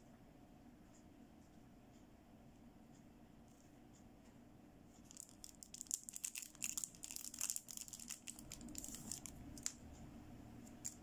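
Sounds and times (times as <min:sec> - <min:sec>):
plastic packaging crinkling: 0:05.1 - 0:09.8, 0:10.7 - 0:11.0.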